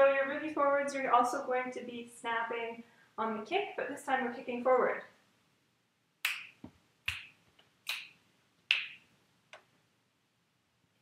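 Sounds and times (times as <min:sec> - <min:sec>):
finger snaps: 0:06.2 - 0:09.7.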